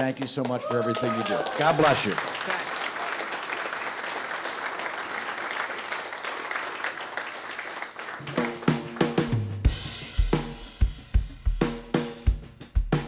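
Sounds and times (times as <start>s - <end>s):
audience applauding: 0.0s - 9.7s
music with drum-kit beat: 8.2s - 13.0s.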